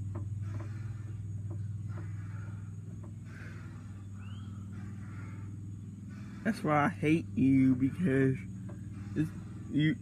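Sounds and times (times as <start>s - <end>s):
utility vehicle engine idling: 0.0s - 10.0s
faint taps: 0.1s - 0.8s, 1.4s - 2.2s.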